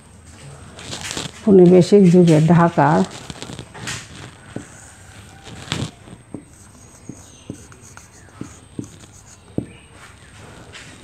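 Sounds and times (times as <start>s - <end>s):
marker tapping on whiteboard: 4.5s - 4.9s, 5.7s - 9.8s.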